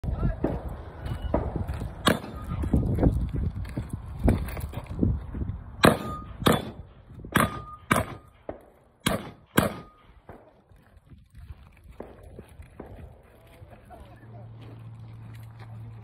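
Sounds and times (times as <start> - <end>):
gunshots: 1.3 - 2.6, 5.8 - 10.5
steel targets ringing: 5.8 - 6.8, 7.4 - 8.4.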